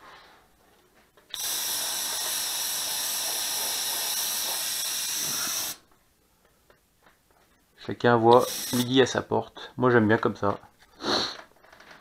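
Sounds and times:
airbrush hiss: 1.4s - 5.8s.

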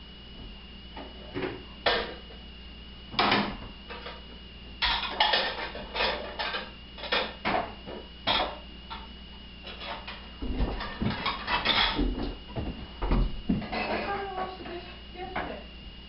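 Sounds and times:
dishes and cutlery clattering: 4.8s - 7.3s, 10.8s - 12.1s, 13.6s - 14.2s.

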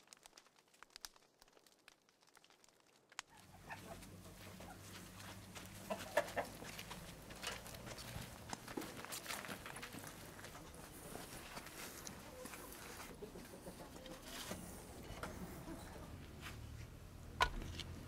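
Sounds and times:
coal fire crackling: 0.0s - 18.0s
chickens clucking: 3.3s - 7.9s, 10.4s - 16.2s.

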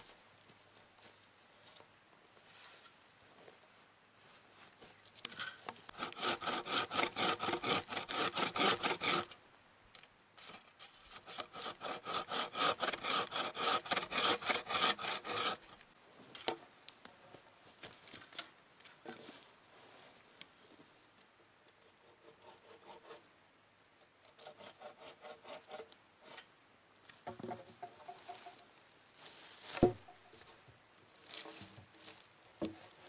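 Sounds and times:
bow saw cutting a log: 5.9s - 9.3s, 11.1s - 15.8s, 22.0s - 23.2s, 24.3s - 26.4s.

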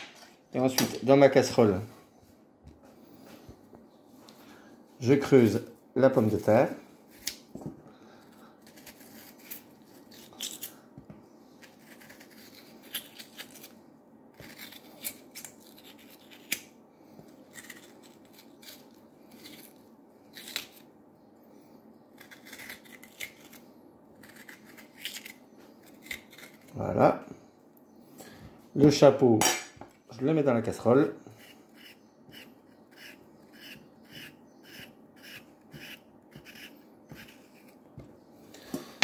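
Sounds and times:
potato flesh scraping: 8.6s - 10.8s, 11.5s - 16.7s, 17.3s - 20.9s, 22.2s - 27.2s, 30.3s - 37.9s.

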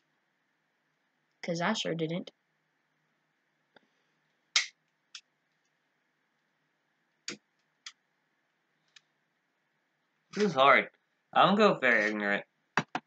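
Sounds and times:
short sharp clicks: 4.6s - 4.8s.

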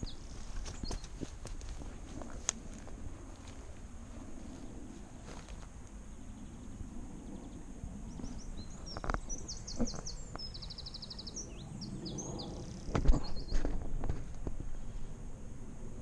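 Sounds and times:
songbird singing trills: 0.0s - 1.4s, 6.0s - 13.7s
low rumble: 0.0s - 10.7s.

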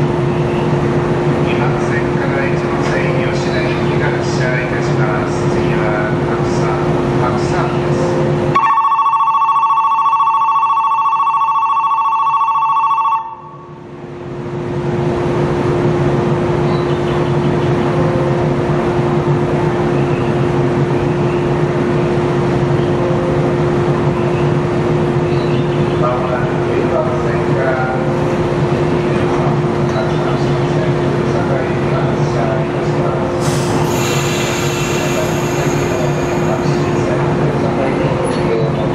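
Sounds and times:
train humming: 0.0s - 8.8s, 13.2s - 38.9s
electric departure bell ringing: 8.6s - 13.8s.

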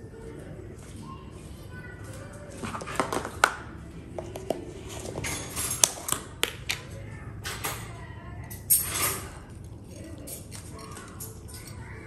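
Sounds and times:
tableware clicking: 5.0s - 6.8s.

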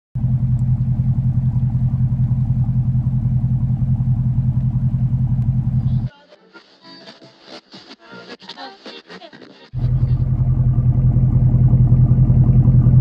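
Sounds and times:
low engine rumble: 0.2s - 6.1s, 9.8s - 13.0s.

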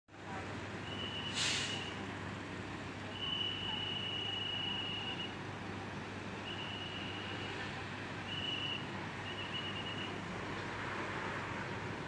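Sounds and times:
brief hiss: 1.3s - 2.0s.

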